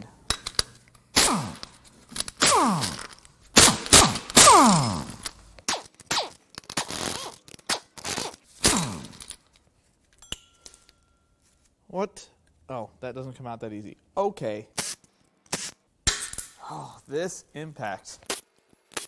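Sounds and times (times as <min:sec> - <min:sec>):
impact wrench hammering: 0:02.4 - 0:05.3.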